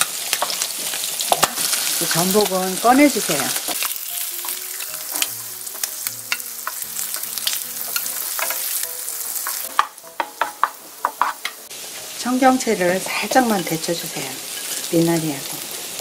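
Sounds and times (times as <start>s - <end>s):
butter sizzling in a frying pan: 0.0s - 16.0s
spatula tapping a pan: 3.8s - 8.8s, 9.4s - 11.6s.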